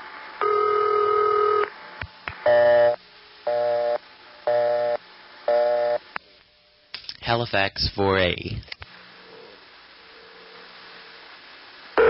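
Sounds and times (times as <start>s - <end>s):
telephone ring tone: 0.4s - 1.7s.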